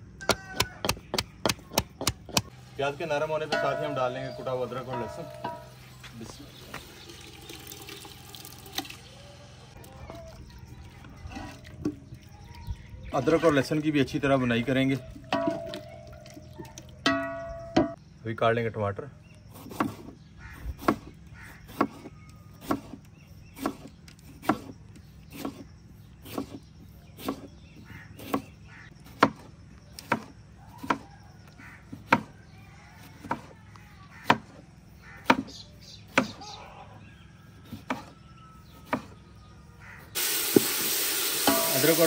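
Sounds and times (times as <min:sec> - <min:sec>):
knife chopping on cutting board: 0:00.3 - 0:02.5, 0:19.6 - 0:20.1, 0:20.8 - 0:21.1, 0:21.7 - 0:23.0, 0:23.6 - 0:24.7, 0:27.2 - 0:27.5, 0:29.1 - 0:31.1, 0:31.9 - 0:32.3, 0:35.2 - 0:35.5
frying sizzle: 0:40.2 - 0:42.0.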